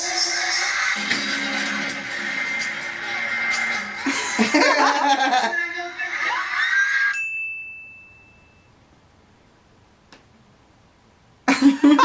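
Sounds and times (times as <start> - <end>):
music: 0.0 - 4.8
high bell-like ding: 7.2 - 8.7.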